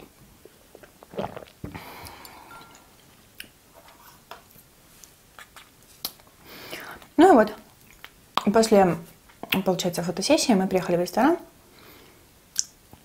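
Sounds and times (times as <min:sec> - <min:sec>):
quiet chewing: 0:00.4 - 0:06.4, 0:07.7 - 0:08.5
person swallowing: 0:00.7 - 0:02.4.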